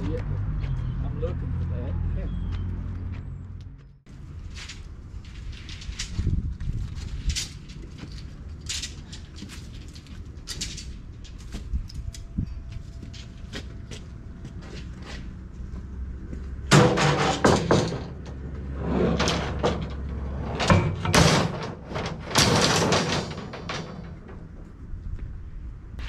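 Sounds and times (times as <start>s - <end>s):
loud knocks and clatters: 16.6s - 24.6s.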